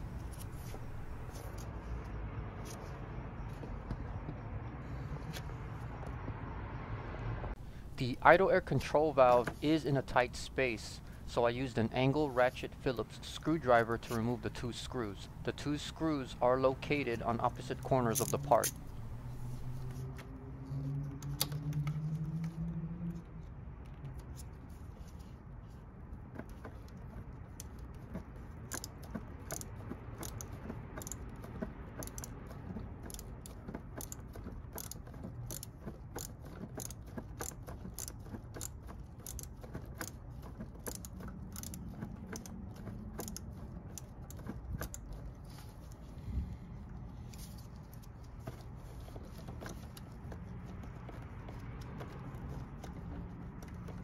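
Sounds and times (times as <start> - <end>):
ratchet screwdriver clicking: 28.7 - 31.4, 32.0 - 45.2.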